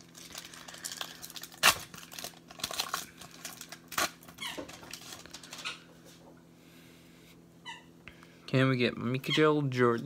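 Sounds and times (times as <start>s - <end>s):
foil wrapper ripping: 0.0s - 5.6s
foil wrapper crinkling: 0.0s - 5.8s.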